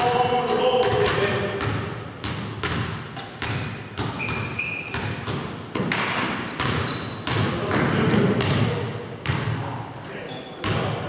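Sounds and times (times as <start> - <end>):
basketballs bouncing on wooden floor: 0.0 - 9.8, 10.6 - 11.0
sneaker squeaks: 2.3 - 11.0.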